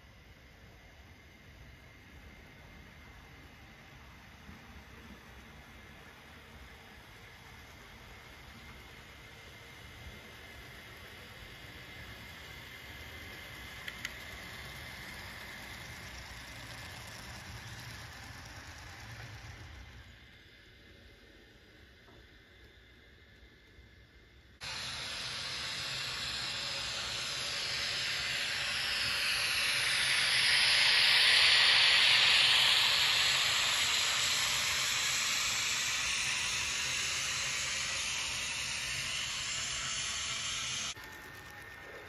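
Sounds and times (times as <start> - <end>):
passing train rushing: 24.6 - 41.8.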